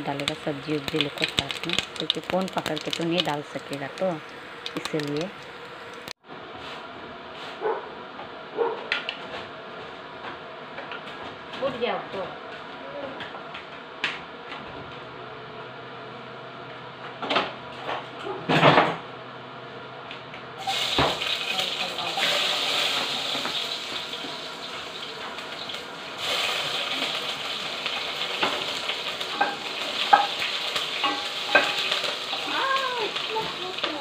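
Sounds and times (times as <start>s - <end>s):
vegetables sizzling in hot oil: 0.0s - 6.2s, 20.6s - 34.0s
spatula clattering: 29.3s - 32.6s.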